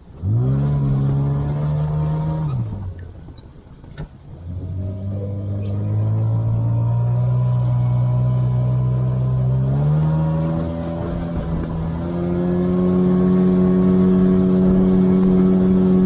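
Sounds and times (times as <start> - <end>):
outboard motor running: 0.0 - 16.0.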